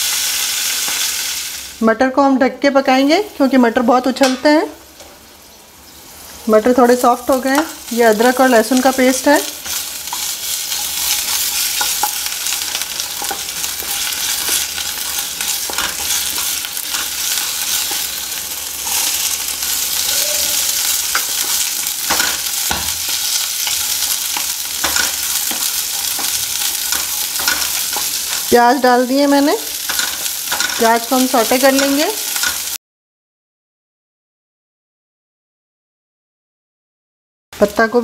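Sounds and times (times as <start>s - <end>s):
food sizzling in hot oil: 0.0s - 1.9s, 2.9s - 32.8s
wooden spoon scraping a pan: 7.6s - 28.6s, 29.6s - 32.8s.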